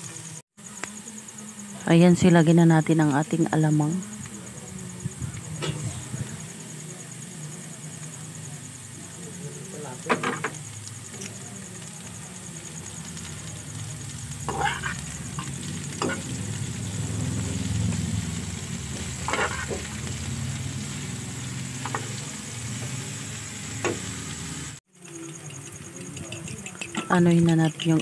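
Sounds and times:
food sizzling in a frying pan: 0:00.0 - 0:28.0
steady low hum: 0:00.6 - 0:24.8
metal turner scraping a pan: 0:05.6 - 0:06.2, 0:14.4 - 0:16.5, 0:18.9 - 0:20.0.

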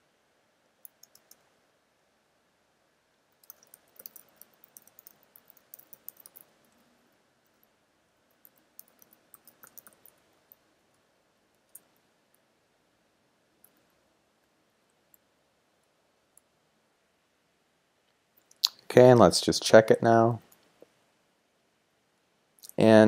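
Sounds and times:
typing on computer keyboard: 0:00.8 - 0:01.4, 0:03.4 - 0:06.6, 0:08.3 - 0:10.2.

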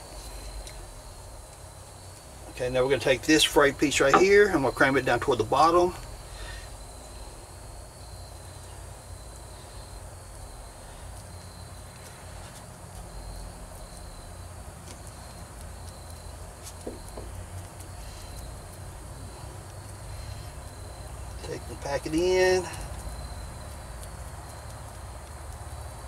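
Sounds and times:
insect chirping: 0:00.0 - 0:26.0
faint ticks: 0:08.0 - 0:21.3, 0:22.7 - 0:26.0.

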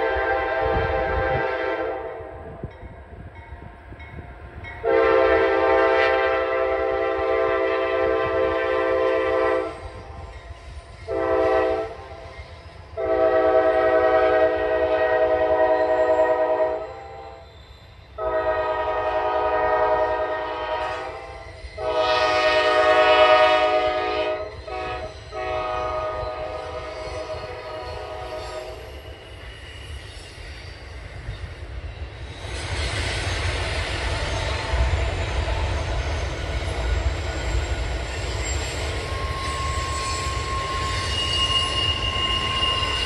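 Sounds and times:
locomotive air horn blasts: 0:00.0 - 0:02.4, 0:04.8 - 0:10.2, 0:11.1 - 0:12.3, 0:13.0 - 0:17.4, 0:18.2 - 0:28.8
train rumble: 0:00.0 - 0:43.0.

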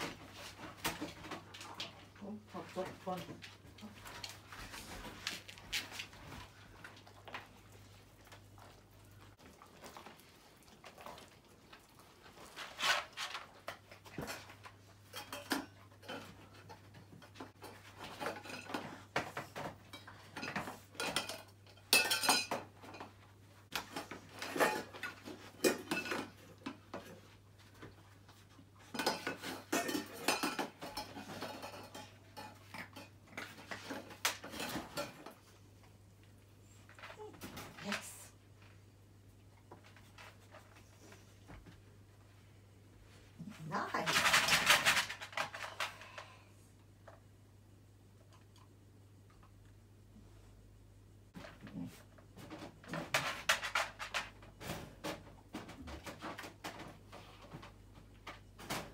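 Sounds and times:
metal tins clattering in tray: 0:19.8 - 0:23.1, 0:23.8 - 0:26.5, 0:28.9 - 0:35.3.

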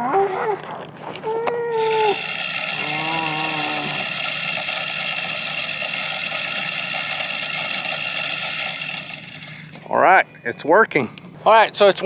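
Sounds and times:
feeder motor whining: 0:01.7 - 0:09.9.

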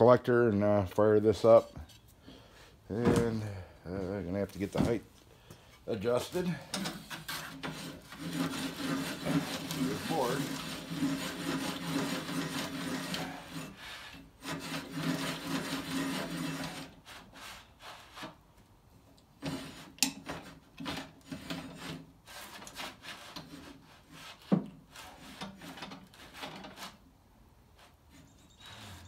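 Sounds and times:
handwheel cranking rasping: 0:06.7 - 0:17.0.

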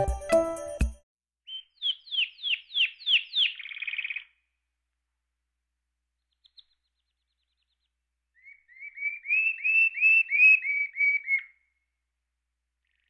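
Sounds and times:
canary singing: 0:01.5 - 0:04.3, 0:08.4 - 0:11.6.

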